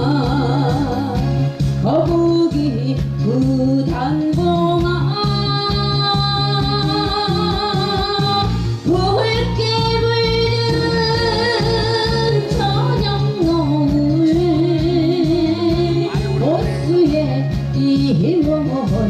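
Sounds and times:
backing track with steady beat: 0.0 - 19.0
woman singing into microphone: 0.0 - 19.0.

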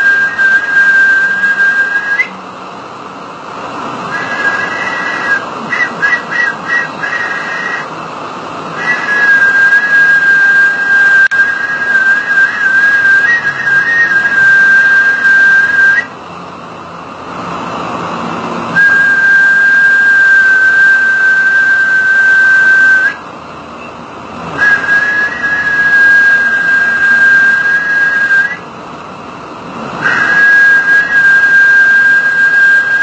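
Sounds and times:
high steady whistling tone: 0.0 - 2.4, 3.6 - 8.0, 8.6 - 16.2, 18.7 - 28.7, 29.9 - 33.0.

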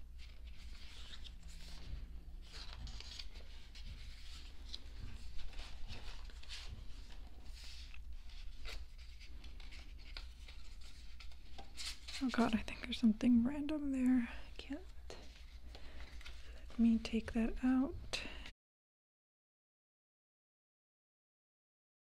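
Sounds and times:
photo book pages turning: 0.0 - 13.0, 14.9 - 17.3.

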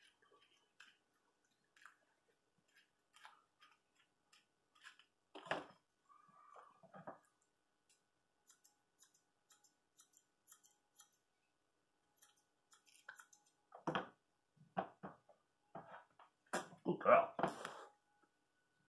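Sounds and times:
scissors snipping hair: 7.9 - 11.2, 12.2 - 13.6.

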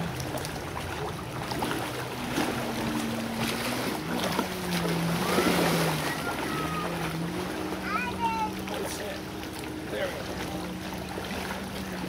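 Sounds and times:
motorboat engine humming: 0.0 - 12.0
outdoor lake ambience: 0.0 - 12.0.

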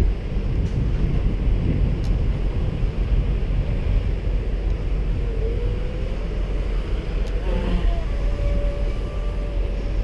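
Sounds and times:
wind rumbling on microphone: 0.0 - 10.0
boat electric motor whine: 4.4 - 10.0.

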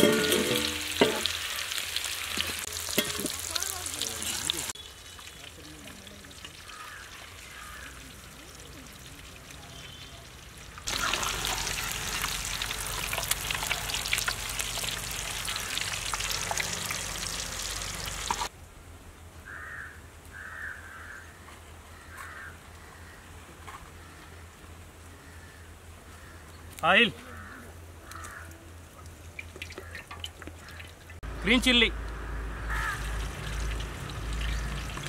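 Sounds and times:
eggs sizzling in hot oil: 0.0 - 18.5, 29.2 - 31.2, 32.7 - 35.0.

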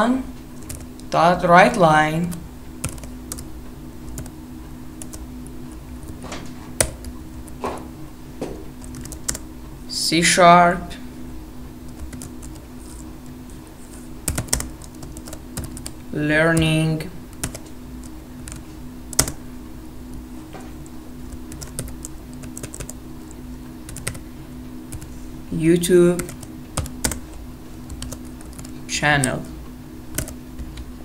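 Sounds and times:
steady low hum: 0.0 - 31.0
keyboard keystrokes: 18.5 - 19.4, 30.2 - 30.8.

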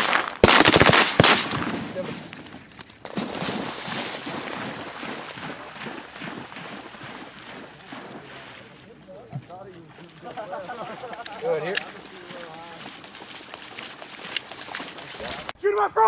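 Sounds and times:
shotgun blasts: 0.0 - 2.4
dog splashing through water: 3.0 - 15.6.

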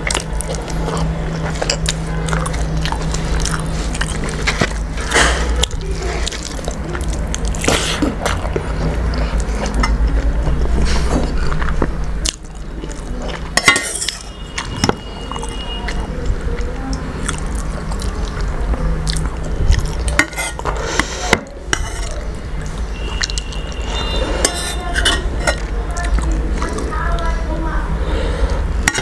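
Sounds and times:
chewing: 0.0 - 27.4
steel ladle clinking on pot: 24.4 - 25.6.

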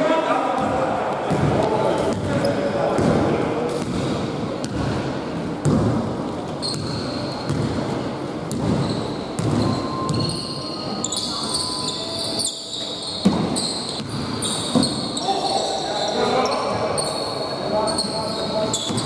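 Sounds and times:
sneaker squeaks: 6.5 - 7.9, 8.5 - 19.0.

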